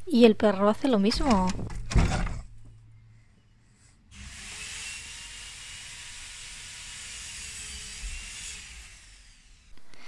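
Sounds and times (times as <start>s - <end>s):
faint wavering hum: 2.4s - 4.1s.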